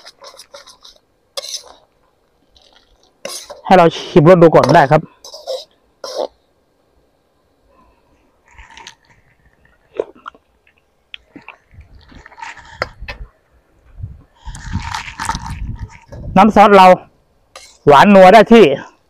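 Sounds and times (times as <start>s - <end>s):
mouth sounds tasting: 8.4s - 13.1s.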